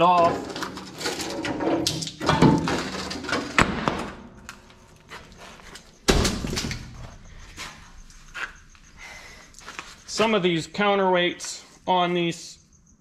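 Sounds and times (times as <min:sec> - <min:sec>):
heavy steel parts clanking: 0:00.0 - 0:04.8
heavy metal thud: 0:03.5 - 0:04.4, 0:06.1 - 0:07.3.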